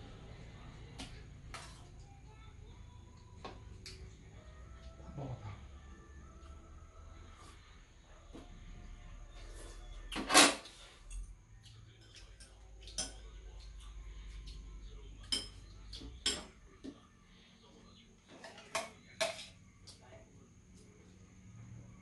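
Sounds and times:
utensils clinking on metal bowls: 18.3s - 19.6s.

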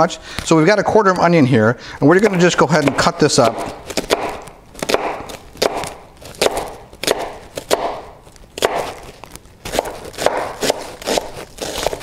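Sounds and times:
knife chopping onion on board: 2.6s - 9.1s, 9.7s - 12.0s.

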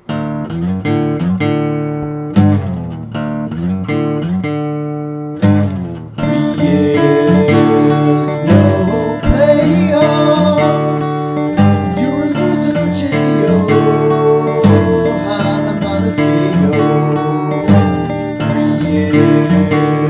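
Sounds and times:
acoustic guitar strumming: 0.0s - 20.0s.

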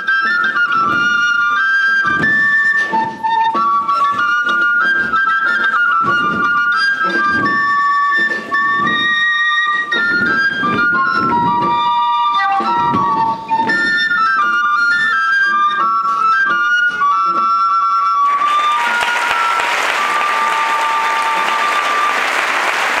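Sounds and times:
flute melody: 0.0s - 23.0s
applause: 18.2s - 23.0s.

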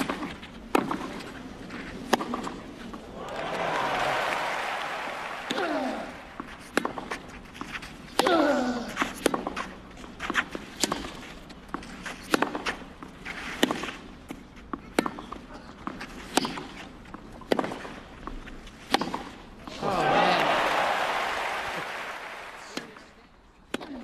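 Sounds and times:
tennis ball struck by racket: 2.0s - 2.6s, 12.2s - 12.8s, 17.4s - 18.0s, 18.8s - 19.4s
crowd noise: 3.0s - 6.8s, 19.6s - 23.6s
player grunting: 5.5s - 6.2s.

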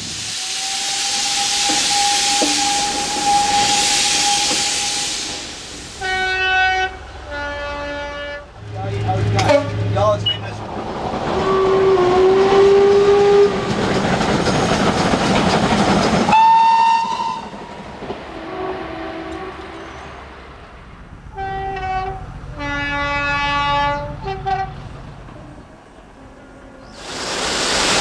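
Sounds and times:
passing train rattle: 0.0s - 28.0s
distant train horn: 1.3s - 5.0s, 6.0s - 8.7s, 11.4s - 13.7s, 16.3s - 17.6s, 18.3s - 20.2s, 21.3s - 24.8s
train horn blasts: 6.0s - 8.6s, 16.3s - 17.6s, 18.3s - 19.9s, 21.3s - 24.8s.

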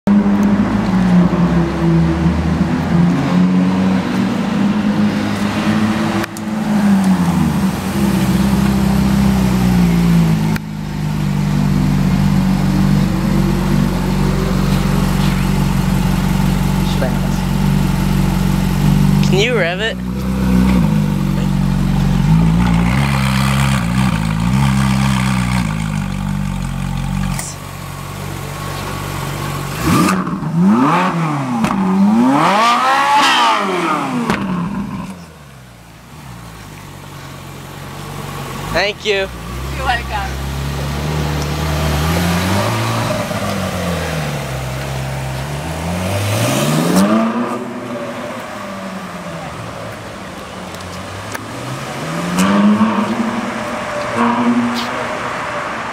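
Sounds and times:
car engine idling: 4.3s - 30.8s, 34.2s - 45.9s
car engine revving in blips: 28.7s - 35.8s, 39.5s - 55.9s.

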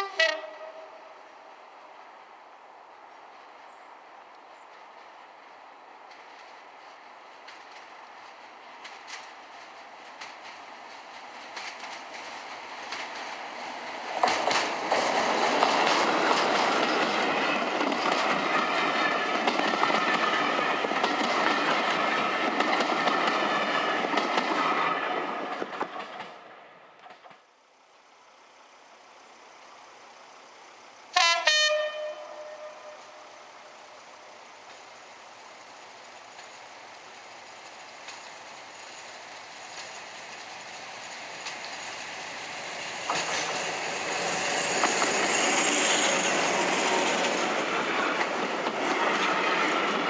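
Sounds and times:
distant locomotive horn blast: 0.0s - 1.2s, 31.2s - 33.6s
diesel locomotive engine passing: 0.0s - 50.0s
coaches clickety-clack over rail joints: 2.8s - 50.0s.

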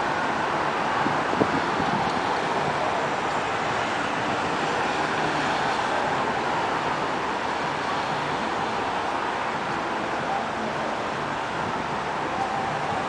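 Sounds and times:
city road traffic hum: 0.0s - 13.0s.

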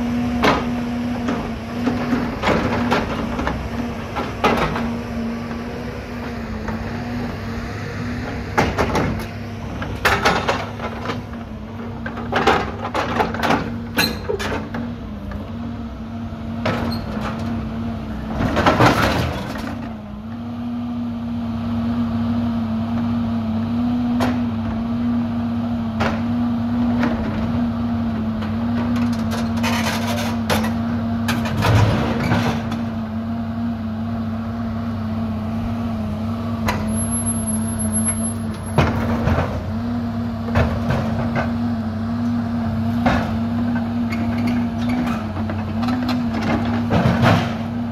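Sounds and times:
diesel engine running: 0.0s - 47.9s
metal clanks and scraping: 12.0s - 14.8s, 28.8s - 32.9s.

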